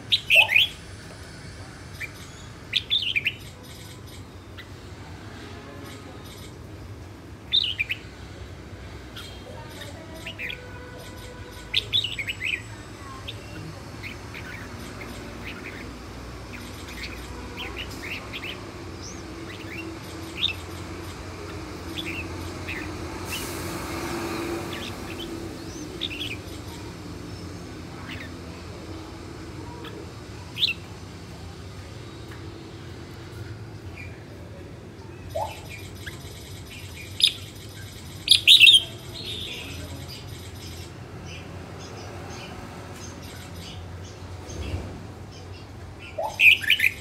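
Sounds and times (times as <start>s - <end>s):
bird chirping: 0.1s - 0.8s, 9.1s - 31.0s, 35.2s - 47.0s.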